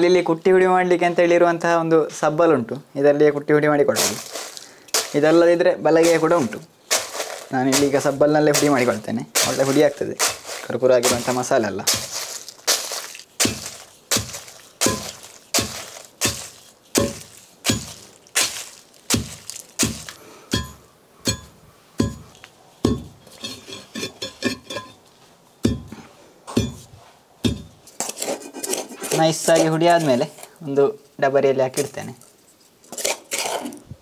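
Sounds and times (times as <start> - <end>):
iron rod pounding in stone mortar: 4.9 - 5.4, 6.0 - 25.0, 25.6 - 27.8.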